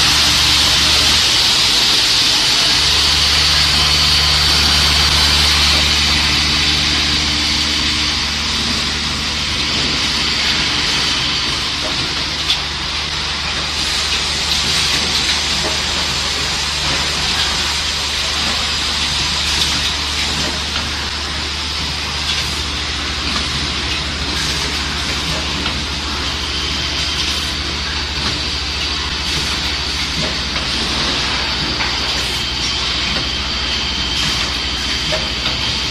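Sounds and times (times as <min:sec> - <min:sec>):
machine humming: 0:00.0 - 0:35.9.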